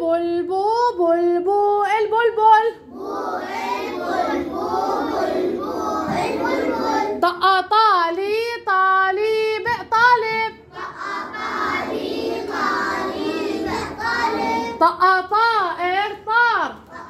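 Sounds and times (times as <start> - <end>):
children chanting in unison: 2.8 - 7.2, 10.7 - 14.8.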